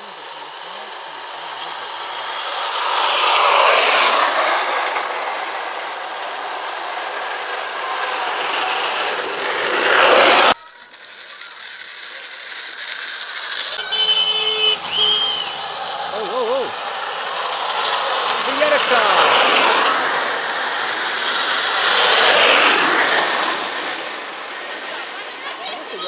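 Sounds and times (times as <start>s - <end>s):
cart wheels rumbling on asphalt: 0.0s - 26.0s.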